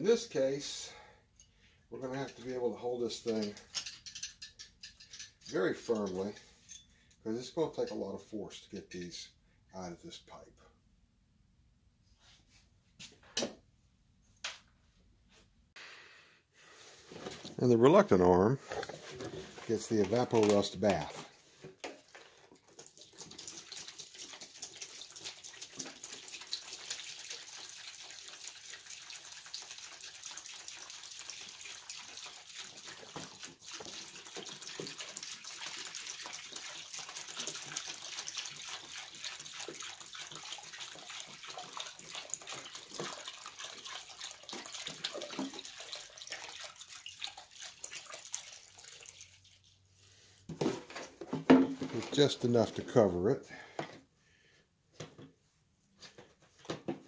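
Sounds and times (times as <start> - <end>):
liquid pouring and splashing into tub: 17.1 - 53.7.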